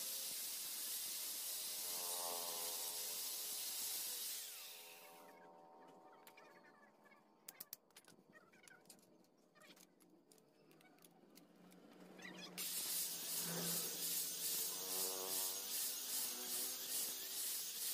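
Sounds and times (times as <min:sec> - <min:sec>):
angle grinder grinding metal: 0:00.0 - 0:05.3, 0:12.6 - 0:17.9.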